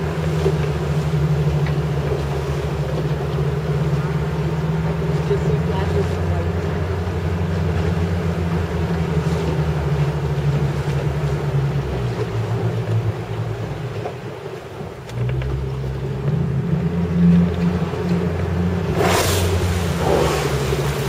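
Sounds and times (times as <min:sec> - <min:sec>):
boat motor running: 0:00.0 - 0:21.0
water noise: 0:00.0 - 0:21.0.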